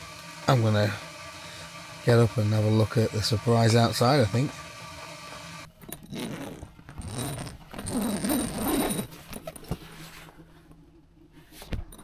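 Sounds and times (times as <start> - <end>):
zip being pulled open: 6.0 - 9.3.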